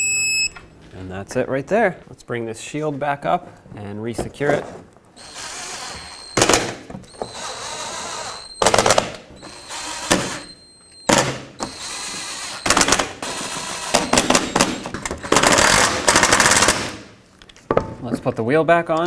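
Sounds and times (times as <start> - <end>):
impact wrench hammering: 5.2 - 10.5, 11.1 - 17.1
impact wrench motor running: 5.2 - 10.5, 11.6 - 16.9.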